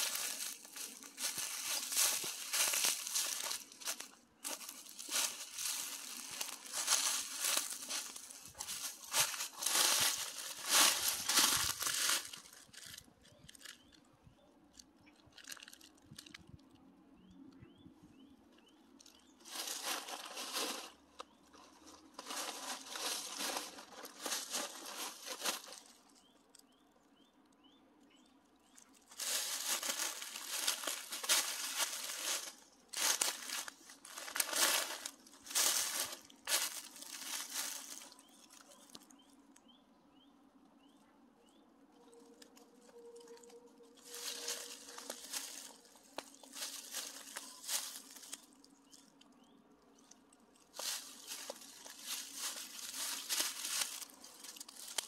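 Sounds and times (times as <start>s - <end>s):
footsteps crunching dry leaves: 0.0s - 13.7s, 19.3s - 26.2s, 28.8s - 39.1s, 42.4s - 49.2s, 50.0s - 55.0s.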